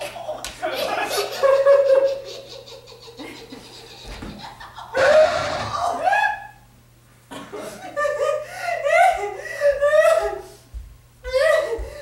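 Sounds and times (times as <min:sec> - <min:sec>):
person laughing: 0:00.2 - 0:06.4, 0:11.3 - 0:12.0.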